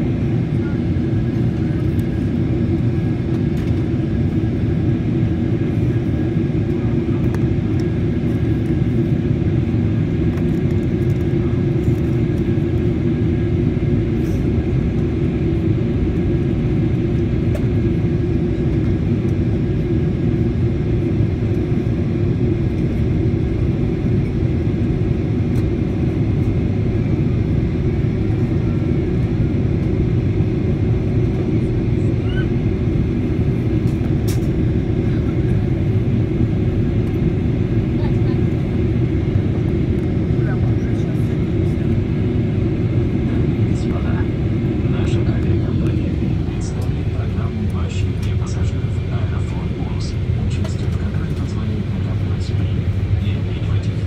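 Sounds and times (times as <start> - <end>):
aircraft cabin roar: 0.0 - 54.0.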